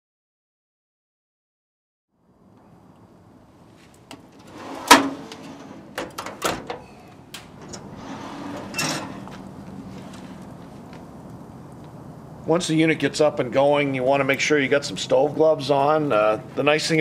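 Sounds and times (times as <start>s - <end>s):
metal drawer clanking: 4.4s - 9.4s.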